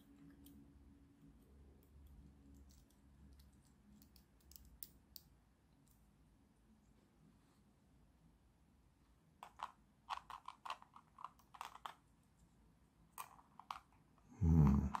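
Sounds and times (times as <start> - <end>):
low room hum: 0.0 - 15.0
plastic puzzle pieces clicking: 1.8 - 5.3, 9.4 - 12.0, 13.1 - 14.1, 14.7 - 15.0.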